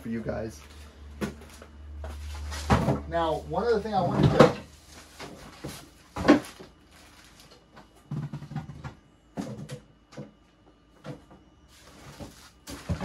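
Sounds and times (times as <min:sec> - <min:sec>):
knocks and rustles on concrete floor: 0:01.2 - 0:03.2, 0:04.0 - 0:06.7, 0:07.8 - 0:10.3, 0:11.0 - 0:13.0.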